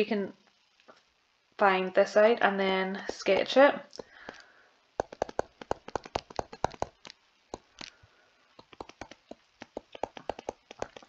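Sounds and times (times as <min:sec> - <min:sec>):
stylus tapping on tablet screen: 0:03.1 - 0:04.4, 0:05.0 - 0:08.0, 0:08.6 - 0:11.0.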